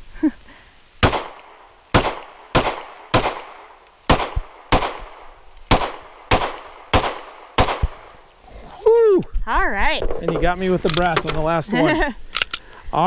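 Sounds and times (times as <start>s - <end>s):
pistol shots with echo: 1.0s - 8.0s.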